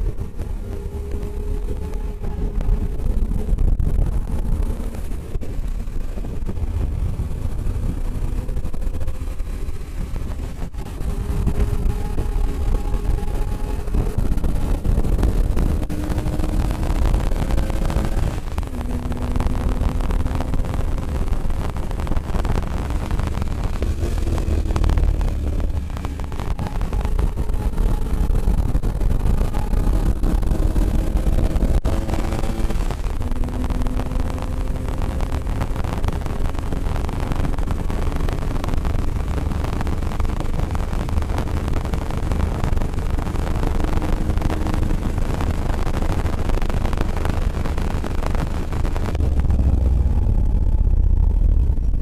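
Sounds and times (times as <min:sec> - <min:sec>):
car engine revving under load: 0:00.0 - 0:52.0
wind and road noise in cabin: 0:00.0 - 0:52.0.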